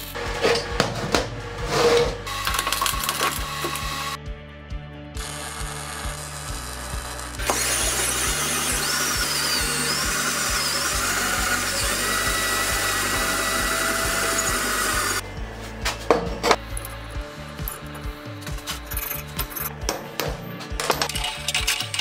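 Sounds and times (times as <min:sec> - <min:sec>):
power drill whining: 0:01.6 - 0:04.2, 0:05.2 - 0:15.5.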